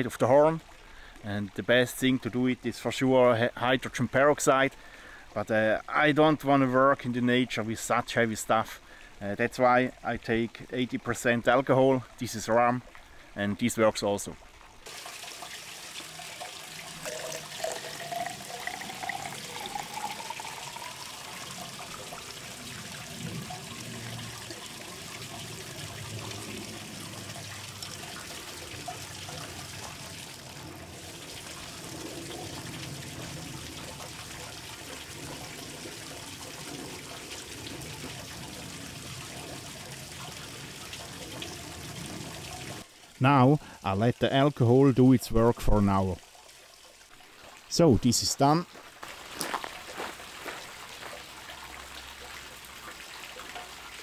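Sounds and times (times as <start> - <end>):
watery trickle: 0.0 - 54.0
liquid gurgling into a horn: 14.8 - 43.8.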